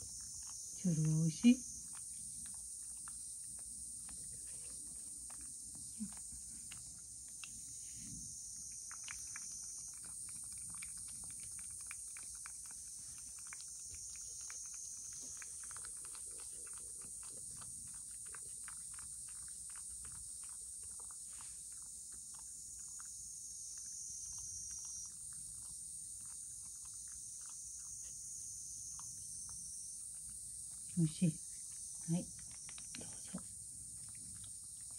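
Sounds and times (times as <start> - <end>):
cat licking wet tongue clicks: 8.6 - 23.1, 31.8 - 34.9.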